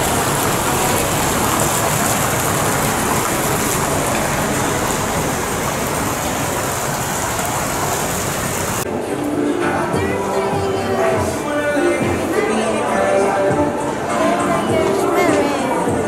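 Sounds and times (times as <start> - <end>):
fountain water splashing: 0.0 - 9.4.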